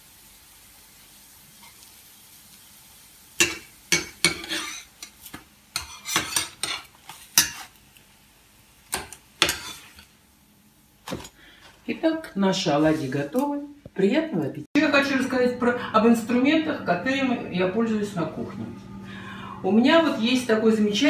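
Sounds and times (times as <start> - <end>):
pancakes sizzling in oil: 0.0 - 11.8
metal spatula scraping frying pan: 3.4 - 7.8, 9.0 - 10.1.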